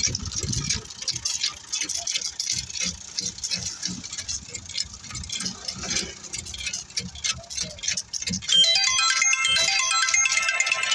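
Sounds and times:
clicking and scraping of stone chips: 0.0s - 8.6s
bright tinkling melody: 8.5s - 10.9s.

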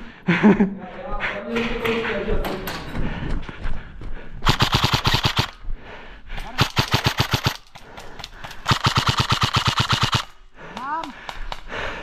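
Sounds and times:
airsoft rifle firing bursts: 4.4s - 5.6s, 6.4s - 10.4s.

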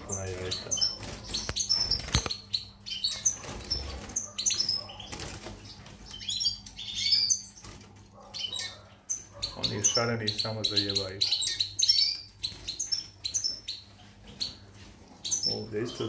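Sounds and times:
birds chirping: 0.0s - 16.0s
wings fluttering: 0.9s - 2.4s, 3.2s - 6.2s
birds knocking in cage: 1.2s - 2.4s.

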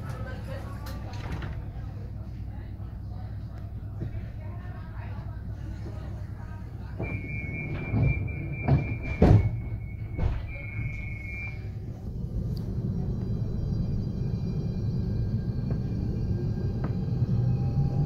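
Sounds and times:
train running rumble: 0.0s - 18.0s
sliding doors thudding shut: 7.0s - 10.7s
high door warning tone: 7.0s - 11.7s.

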